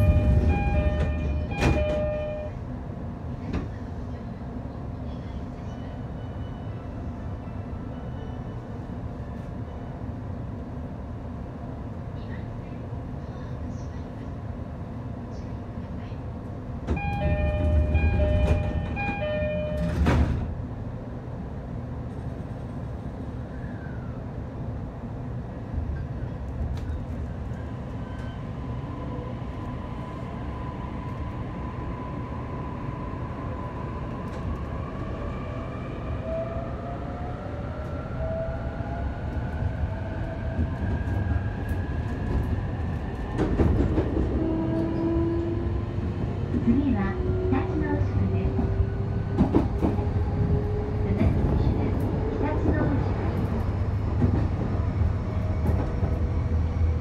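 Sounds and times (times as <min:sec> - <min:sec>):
train doors shutting with a thud: 0:00.0 - 0:02.6, 0:16.8 - 0:20.6, 0:40.4 - 0:46.9, 0:48.0 - 0:50.3
rumble of train cars: 0:00.0 - 0:57.0.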